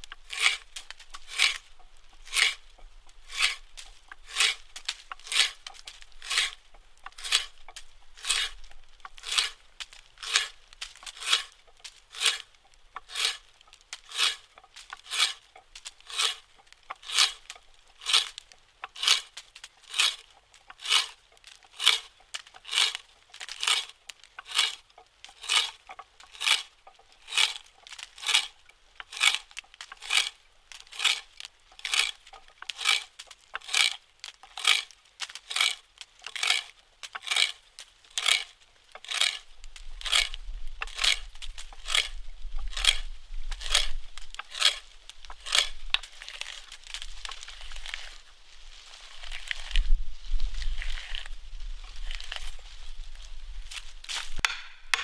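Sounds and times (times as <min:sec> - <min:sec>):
hand auger boring into log: 0:00.0 - 0:09.6, 0:10.2 - 0:48.2.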